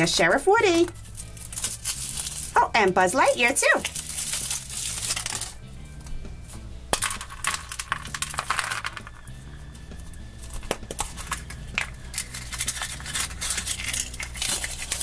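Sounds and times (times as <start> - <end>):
chocolate egg cracking: 0.9 - 2.6, 3.8 - 5.6, 6.9 - 15.0
plastic capsule snapping open: 10.5 - 14.8.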